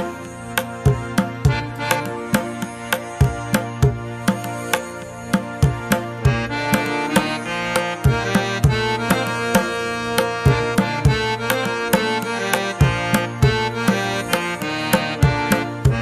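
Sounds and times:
sustained melodic instruments: 0.0s - 16.0s
drum beat: 10.2s - 12.2s.

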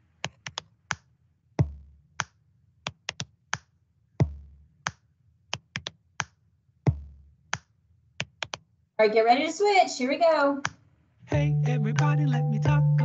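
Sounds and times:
hand claps: 0.2s - 1.1s, 5.6s - 6.4s.

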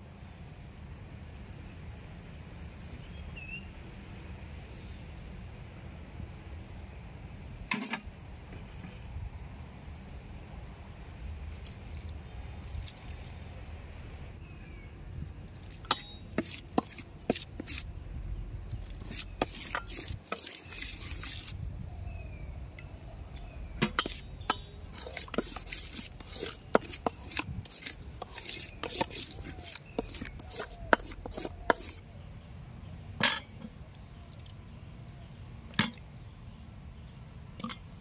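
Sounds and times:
spoon mixing in metal bowl: 15.6s - 17.9s, 18.7s - 21.6s, 23.8s - 32.0s.

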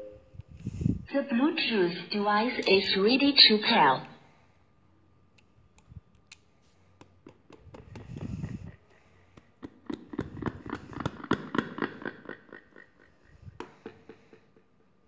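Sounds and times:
clicks and taps on microphone: 7.0s - 8.8s.

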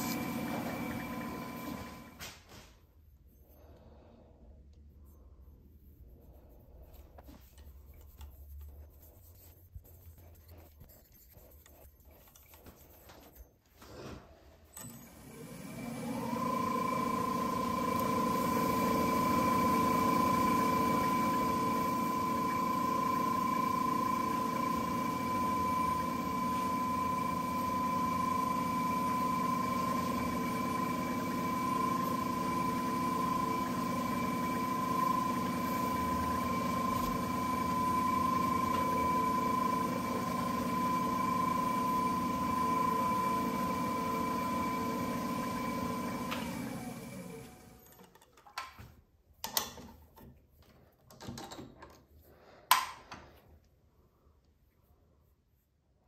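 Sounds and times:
lathe motor whining: 0.0s - 2.2s, 14.8s - 47.9s.

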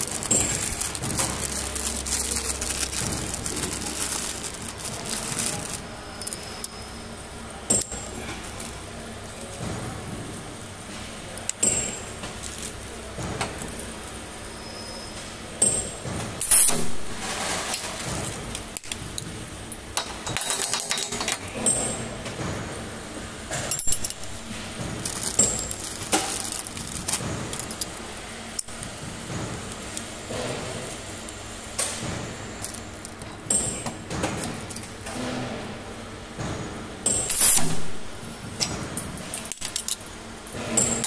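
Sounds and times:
metal studs clinking and rattling: 0.0s - 6.7s, 23.6s - 28.0s, 38.9s - 40.1s.

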